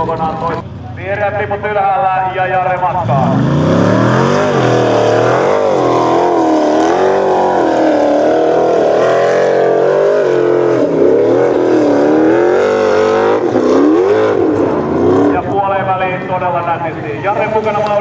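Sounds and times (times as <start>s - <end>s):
buggy engine revving hard: 2.9s - 15.6s.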